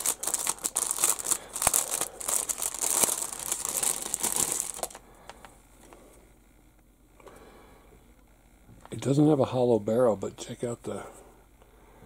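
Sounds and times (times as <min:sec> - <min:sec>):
plastic bag crinkling: 0:00.0 - 0:05.4.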